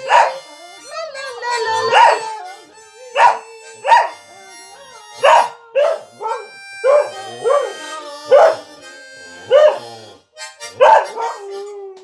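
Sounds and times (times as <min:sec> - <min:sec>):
held musical notes: 0:00.0 - 0:12.0
dog howling: 0:01.7 - 0:02.4, 0:05.2 - 0:08.7, 0:10.8 - 0:12.0.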